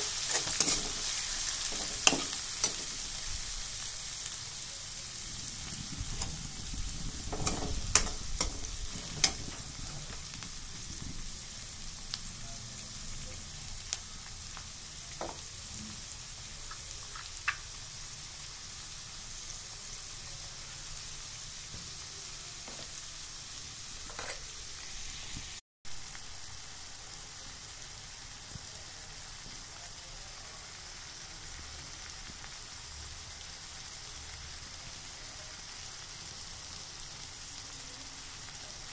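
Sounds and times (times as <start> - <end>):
steel spoon scraping pan: 0.0 - 3.0, 7.3 - 9.6, 24.1 - 24.6
onions sizzling in oil: 0.0 - 38.9.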